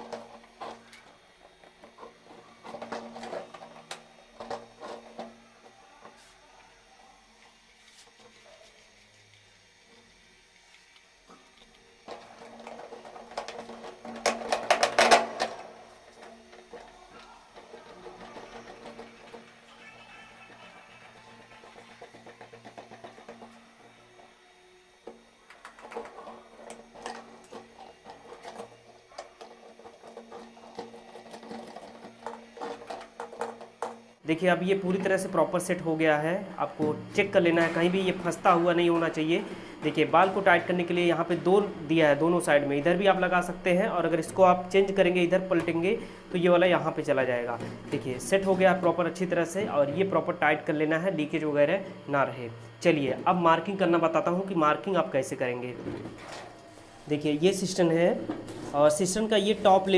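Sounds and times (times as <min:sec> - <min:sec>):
plastic clicking and scraping: 0:11.3 - 0:19.8, 0:25.0 - 0:34.1.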